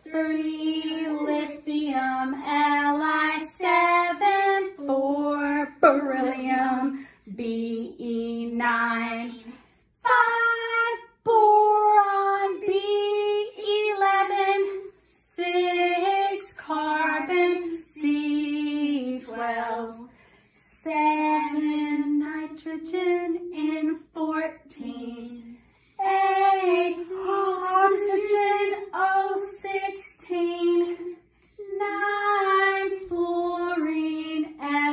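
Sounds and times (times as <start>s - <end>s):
children singing unaccompanied: 7.6s - 20.1s, 20.8s - 34.9s.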